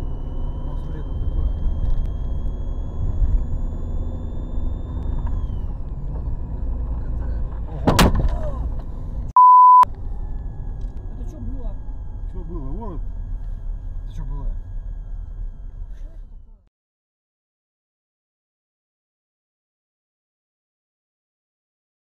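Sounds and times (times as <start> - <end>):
censor bleep tone: 0.0 - 5.1, 9.4 - 9.9
car engine and tyres rumbling: 0.0 - 16.7.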